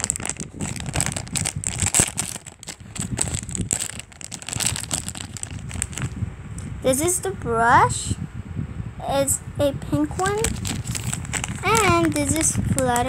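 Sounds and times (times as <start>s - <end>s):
plastic packaging crinkling: 0.0s - 6.2s, 10.1s - 13.0s.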